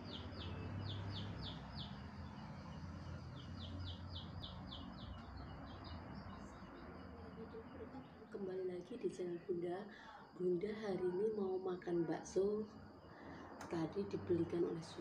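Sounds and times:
bird chirping: 0:00.0 - 0:09.6.

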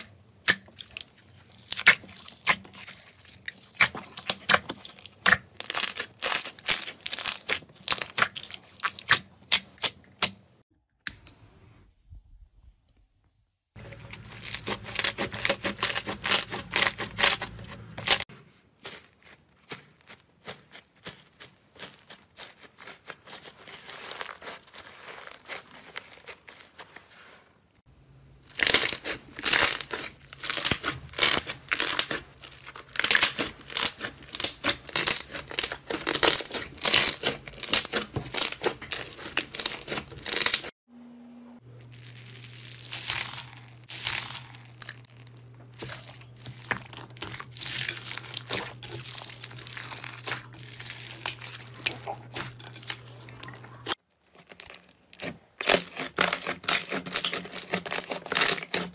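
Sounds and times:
slime crackling and popping: 0:00.4 - 0:10.3, 0:13.8 - 0:18.2, 0:28.5 - 0:40.7, 0:41.8 - 0:58.9.

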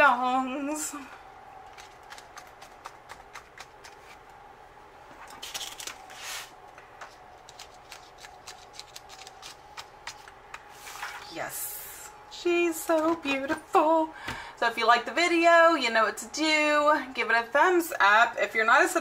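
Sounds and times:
paper rustling: 0:05.1 - 0:11.3.

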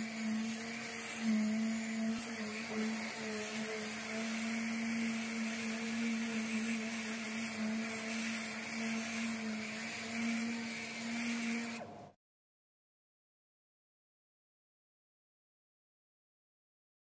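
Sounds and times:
steady sanding hiss: 0:00.0 - 0:11.8
orbital sander motor hum: 0:00.0 - 0:12.1.

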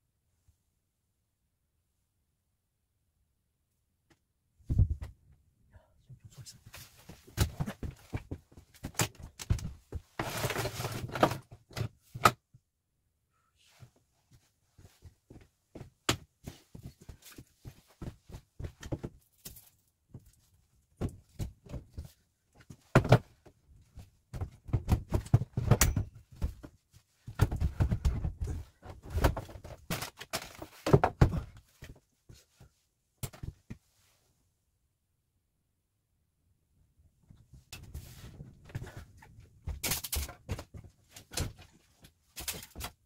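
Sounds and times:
objects knocking and clattering: 0:24.3 - 0:32.0.

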